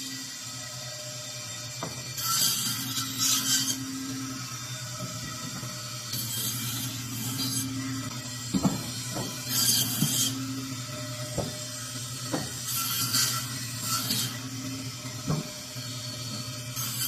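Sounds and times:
band saw motor hum: 0.0s - 17.0s
saw blade hissing through meat: 2.2s - 3.9s, 6.1s - 7.8s, 8.9s - 10.4s, 12.5s - 14.4s, 16.7s - 17.0s.

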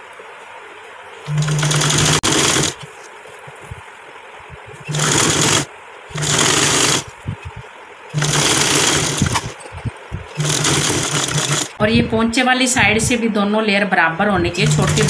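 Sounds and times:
sewing machine running: 1.3s - 2.9s, 4.8s - 7.4s, 8.2s - 11.8s, 14.6s - 15.0s.

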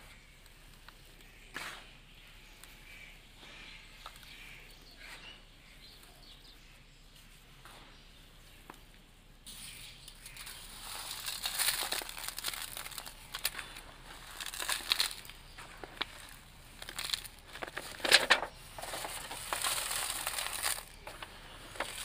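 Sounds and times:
powder trickling through fingers: 9.5s - 22.0s.

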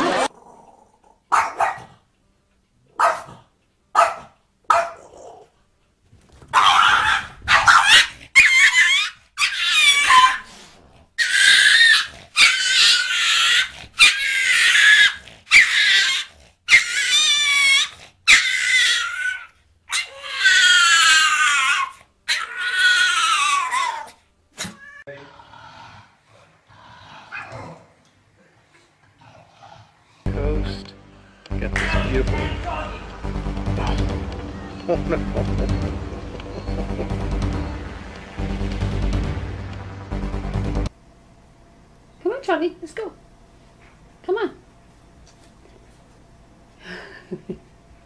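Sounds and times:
dogs barking and yelping: 1.2s - 2.0s, 3.0s - 3.4s, 4.0s - 5.5s, 6.4s - 24.8s, 27.2s - 28.0s.

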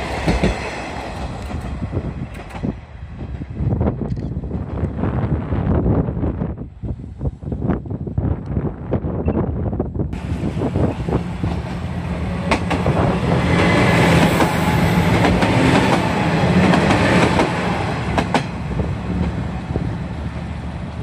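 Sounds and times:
train wheels clattering over rails: 0.0s - 2.8s, 10.8s - 19.4s.

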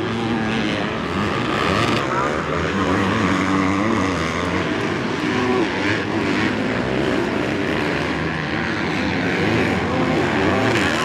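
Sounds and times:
motocross bike engines revving: 0.0s - 11.0s.

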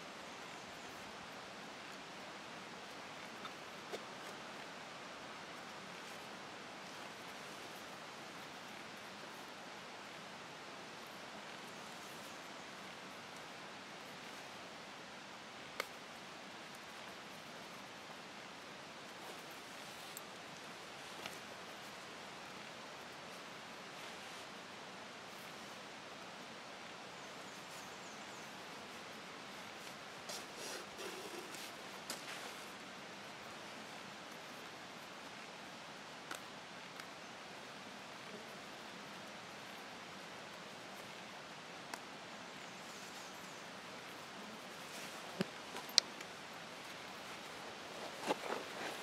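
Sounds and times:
woodland background hiss: 0.0s - 49.0s
cord scratching through leather: 30.3s - 32.7s, 46.8s - 49.0s
leather rustling: 44.6s - 49.0s.

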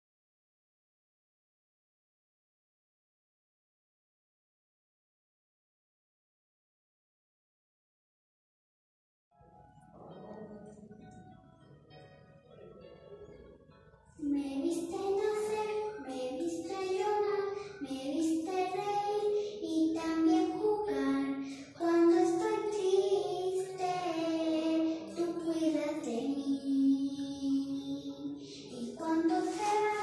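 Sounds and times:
girl singing: 14.2s - 30.0s.

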